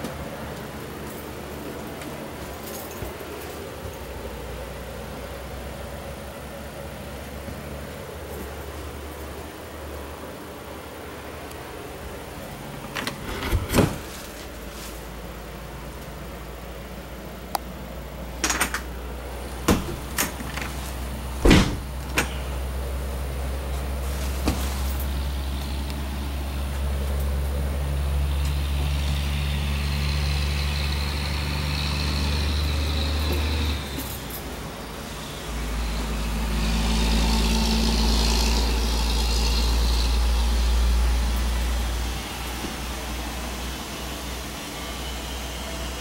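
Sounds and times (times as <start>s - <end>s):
low mechanical rumble: 0.0s - 46.0s
doors and latches knocking: 12.9s - 14.2s, 19.6s - 20.7s, 21.4s - 22.4s.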